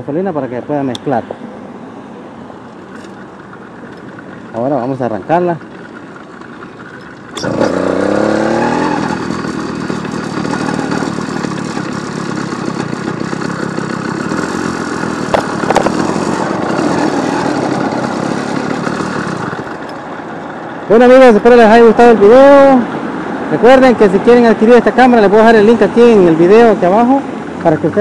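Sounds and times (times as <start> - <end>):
small two-stroke engine revving: 6.5 - 20.2.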